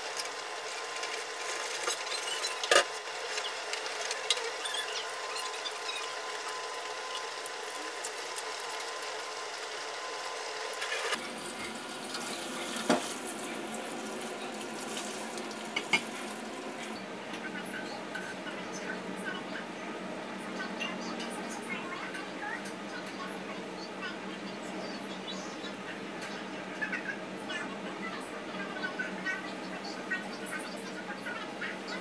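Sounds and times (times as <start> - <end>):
dishes and utensils clinking: 15.7 - 16.9.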